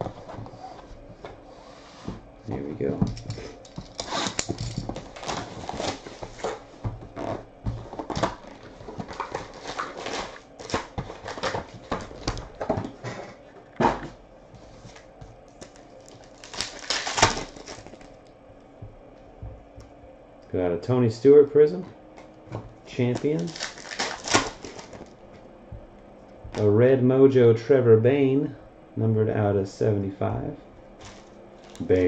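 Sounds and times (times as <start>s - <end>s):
paper and foil rustling: 3.2s - 6.7s, 7.8s - 13.5s, 15.6s - 18.2s, 22.9s - 25.2s, 31.0s - 32.0s
foil pack tearing open: 3.7s - 6.6s, 7.2s - 12.5s, 15.6s - 18.1s, 23.0s - 25.1s, 31.0s - 32.0s.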